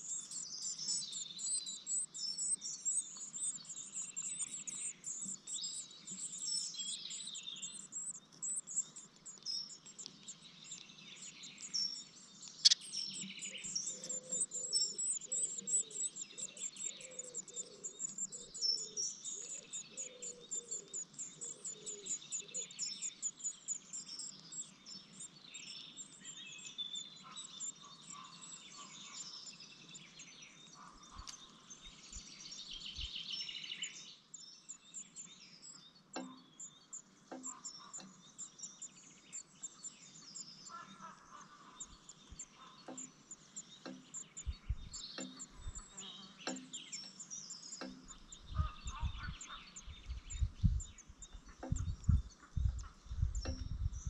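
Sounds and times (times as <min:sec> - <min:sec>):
nestlings cheeping: 0:00.0 - 0:24.3.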